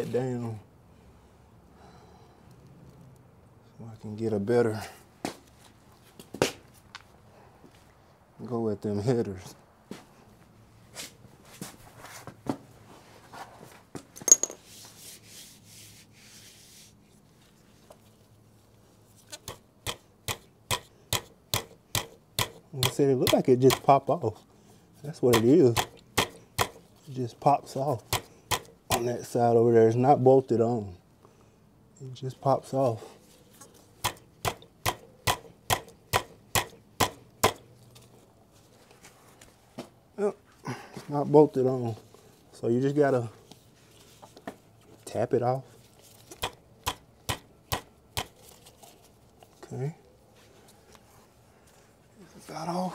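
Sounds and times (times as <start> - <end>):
sharp taps on metal part: 19.4 - 23.9, 25.3 - 26.8, 28.1 - 29.1, 34.0 - 37.6.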